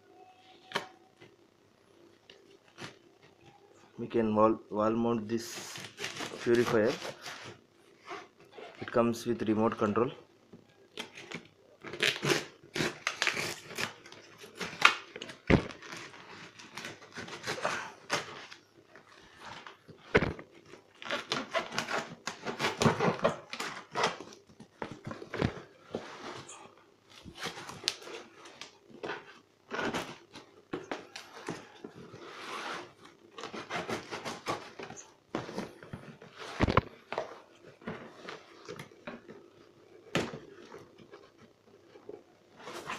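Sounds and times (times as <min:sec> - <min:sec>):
cardboard scraping and tearing: 0:05.5 - 0:08.7, 0:27.2 - 0:39.0, 0:42.5 - 0:42.9
knife slitting packing tape: 0:11.9 - 0:15.0.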